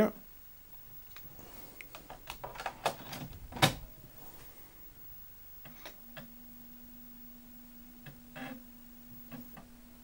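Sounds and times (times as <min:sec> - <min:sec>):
floppy drive clicks and rattles: 0:01.9 - 0:03.9.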